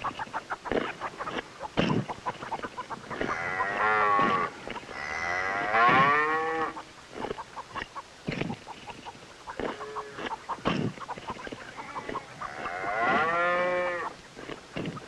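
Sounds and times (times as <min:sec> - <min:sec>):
cow mooing: 0:03.3 - 0:06.8, 0:11.8 - 0:14.1.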